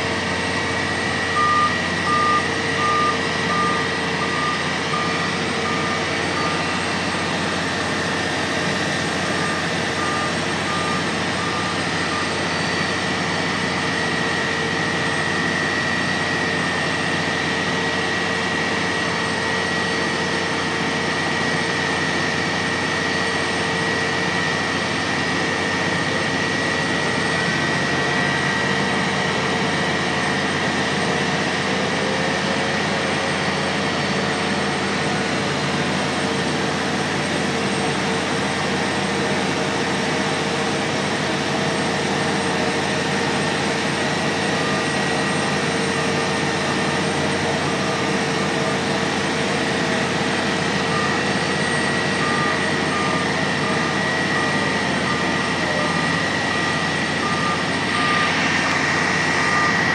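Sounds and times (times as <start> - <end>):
diesel engine running under load: 0.0 - 59.9
steady whine: 0.0 - 59.9
repeating beep: 0.9 - 7.0, 9.2 - 13.0, 50.8 - 59.9.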